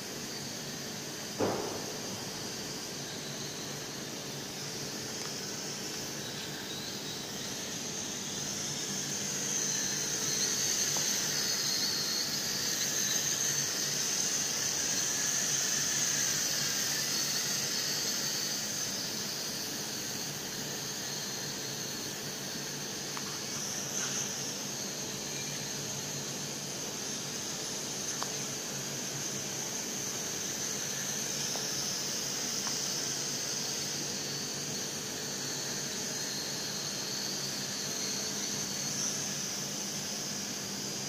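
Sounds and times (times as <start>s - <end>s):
toy drone motors whining: 2.3s - 41.0s.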